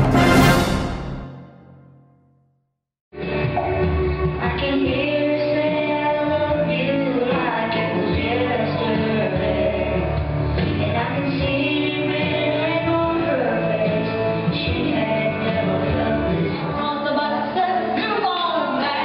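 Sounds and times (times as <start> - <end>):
boy singing into microphone: 3.3 - 19.0.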